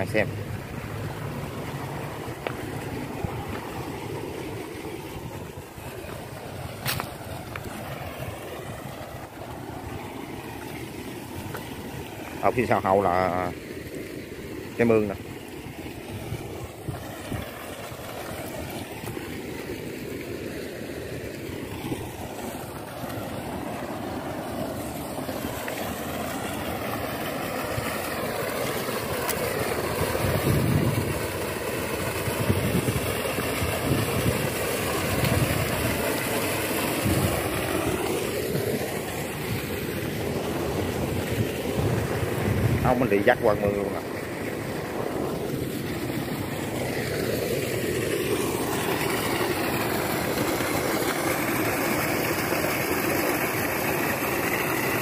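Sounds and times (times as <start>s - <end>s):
slurry gushing from pipe: 14.8s - 55.0s.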